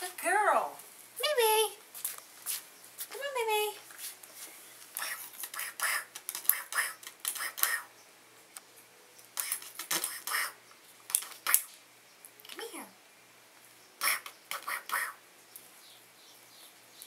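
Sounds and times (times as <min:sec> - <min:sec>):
sharp clicks: 0:05.0 - 0:07.8, 0:09.4 - 0:10.4, 0:11.0 - 0:12.6.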